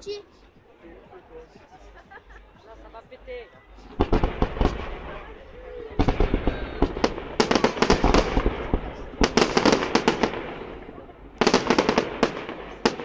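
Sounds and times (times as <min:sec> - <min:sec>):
fireworks bangs and cracks: 0:03.9 - 0:13.0.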